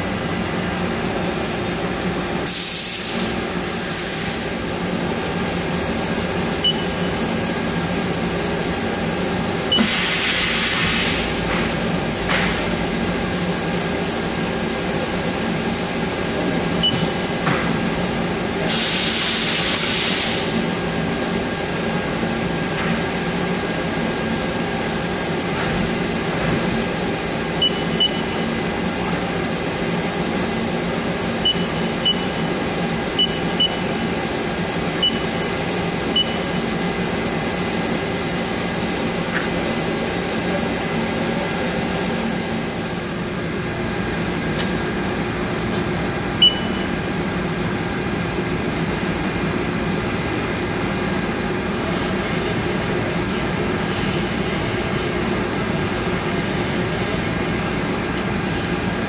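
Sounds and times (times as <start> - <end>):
burst of hiss: 2.5 - 4.4
machine hum with held tones: 4.6 - 9.9, 26.9 - 38.0, 46.3 - 50.7.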